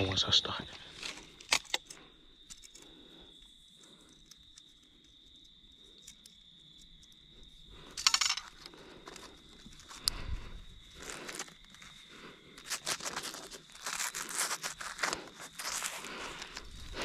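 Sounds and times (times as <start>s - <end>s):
insects chirring: 0.0s - 17.0s
rustle in dry leaves: 10.9s - 17.0s.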